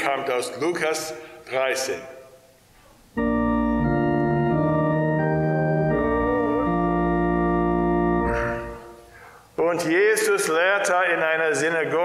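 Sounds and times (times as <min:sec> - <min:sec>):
church organ chords: 0:03.1 - 0:09.3.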